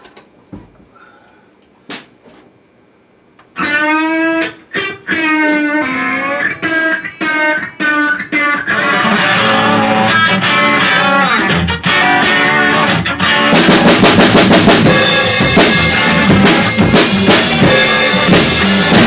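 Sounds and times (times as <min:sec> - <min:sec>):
electric guitar music: 0:03.5 - 0:19.0
band playing: 0:03.6 - 0:19.0.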